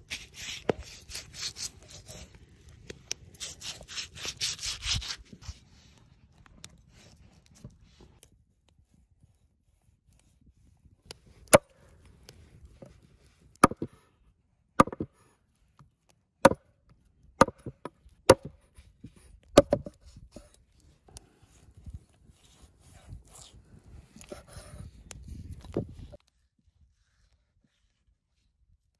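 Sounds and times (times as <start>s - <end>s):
cleaver chopping ribs on wood: 13.6s - 13.9s, 14.8s - 15.1s, 17.4s - 18.5s.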